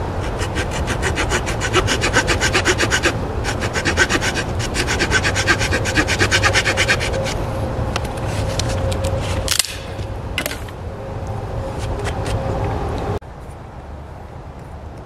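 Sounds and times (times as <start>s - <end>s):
auger bit rasping into wood: 0.0s - 7.4s.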